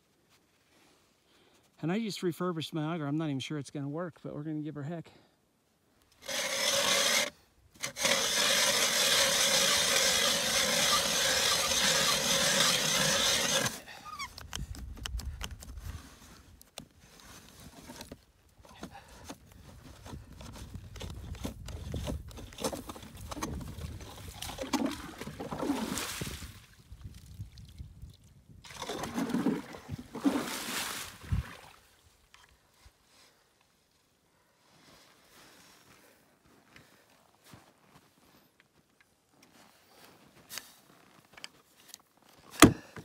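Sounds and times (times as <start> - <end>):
auger scraping and knocking: 6.2 - 13.8, 17.6 - 25.6
ice auger grinding through ice: 6.2 - 14.3, 20.4 - 26.3, 28.7 - 30.7.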